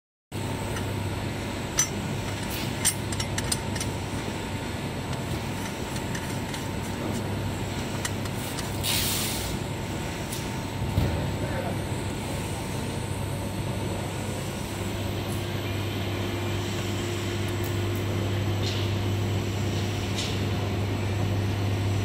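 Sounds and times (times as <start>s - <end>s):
steady background hum: 0.3s - 22.0s
short scraping hiss: 8.8s - 9.5s.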